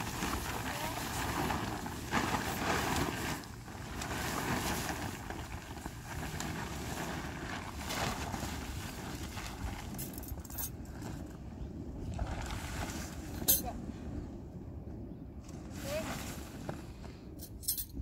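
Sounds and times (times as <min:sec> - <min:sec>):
tent fabric rustling: 0:00.0 - 0:11.3, 0:15.5 - 0:17.0
wind buffeting microphone: 0:00.0 - 0:18.0.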